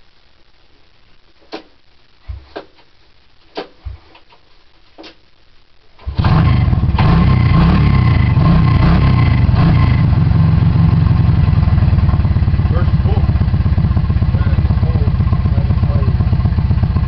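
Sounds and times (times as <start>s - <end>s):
engine running loud: 6.1s - 17.0s.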